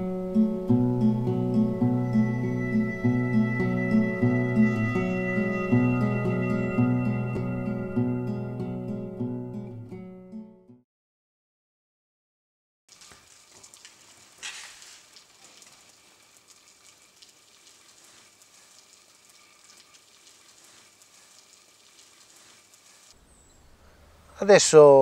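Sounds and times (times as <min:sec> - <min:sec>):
rain falling on paving: 0:12.9 - 0:23.2.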